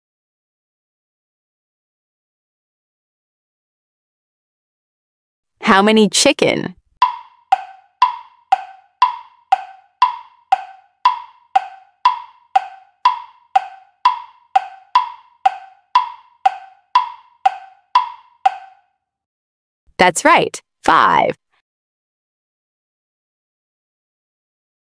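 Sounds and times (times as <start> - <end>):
countdown clock ticking: 7.0 - 18.8.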